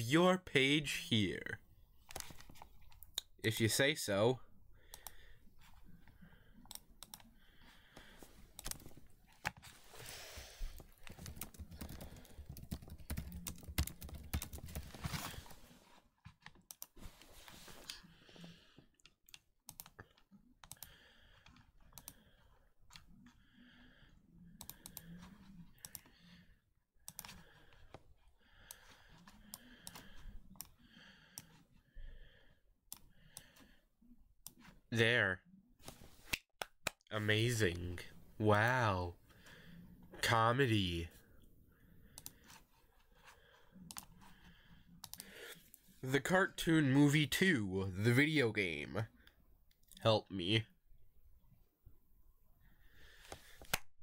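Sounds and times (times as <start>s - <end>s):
keyboard typing clicks: 11.1s - 14.8s, 19.3s - 20.9s.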